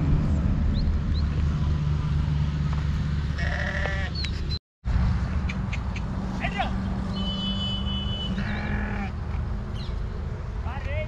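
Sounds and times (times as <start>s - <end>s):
steady low rumble: 0.0s - 3.4s
sheep bleating: 3.4s - 4.2s, 8.3s - 9.2s.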